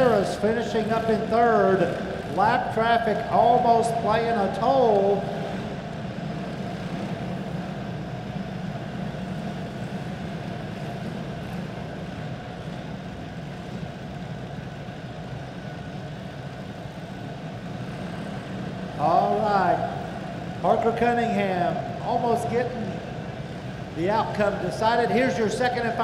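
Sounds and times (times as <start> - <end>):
kart engines droning: 0.0 - 26.0.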